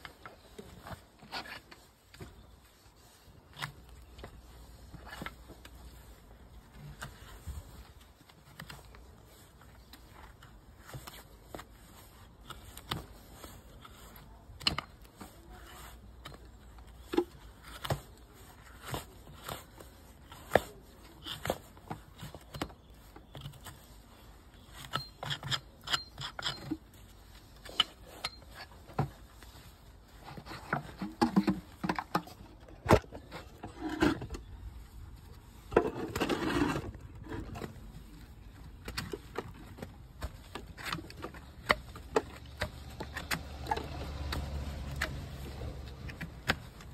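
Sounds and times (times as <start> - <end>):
knife scraping hoof: 10.8 - 32.2, 33.2 - 46.9.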